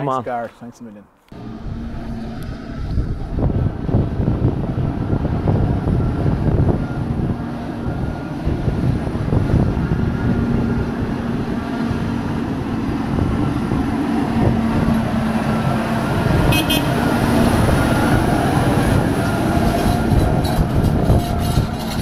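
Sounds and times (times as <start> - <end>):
tractor engine running: 1.3 - 22.0
metal rattles and clanks: 19.6 - 22.0.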